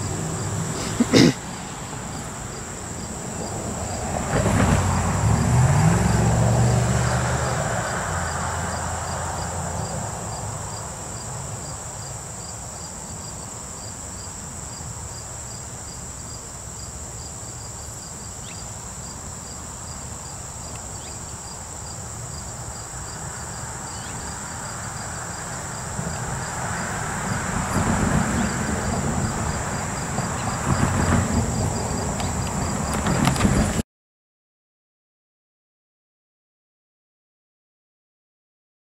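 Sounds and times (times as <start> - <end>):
insects chirping: 0.0 - 33.8
diesel locomotive engine: 22.1 - 33.8.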